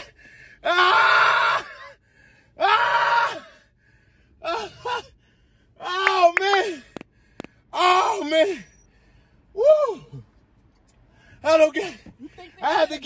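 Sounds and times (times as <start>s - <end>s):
person screaming: 0.6s - 1.8s, 2.6s - 3.5s.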